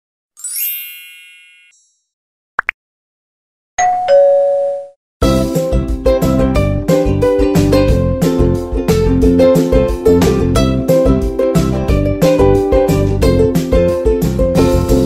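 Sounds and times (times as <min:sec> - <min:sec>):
sparkling chime: 0:00.4 - 0:02.0
background music with plucked guitar: 0:05.2 - 0:15.0.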